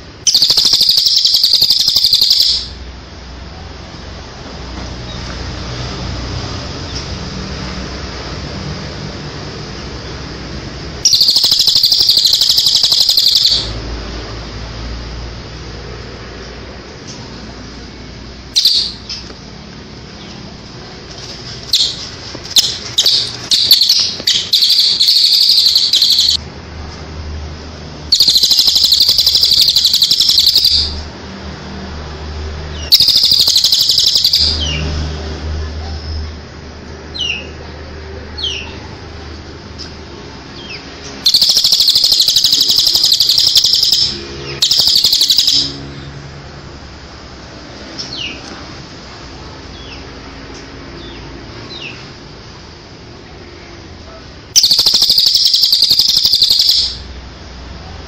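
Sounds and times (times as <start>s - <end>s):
high-pitched bird trilling: 0.2s - 2.8s, 11.0s - 13.8s, 18.6s - 19.3s, 21.7s - 26.4s, 28.1s - 31.0s, 32.8s - 34.8s, 40.7s - 45.9s, 54.6s - 57.1s
short rising chirps: 0.3s - 2.8s, 11.0s - 13.8s, 18.6s - 19.2s, 21.7s - 26.4s, 28.1s - 31.0s, 32.8s - 34.6s, 41.2s - 45.9s, 54.6s - 57.1s.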